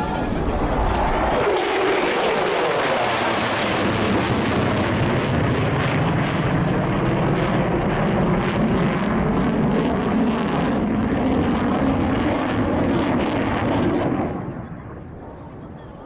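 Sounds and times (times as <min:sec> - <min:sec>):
jet engine roar: 0:00.0 - 0:16.0.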